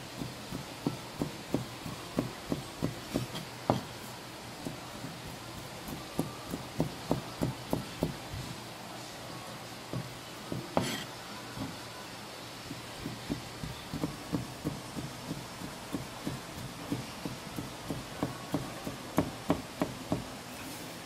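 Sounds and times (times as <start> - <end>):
knife chopping on cutting board: 0.2 - 3.9, 5.8 - 8.2, 9.9 - 11.8, 13.0 - 20.3.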